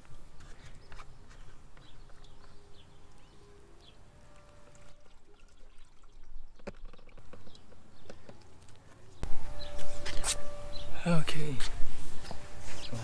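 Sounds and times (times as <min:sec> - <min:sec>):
water pouring and trickling: 0:04.3 - 0:07.7.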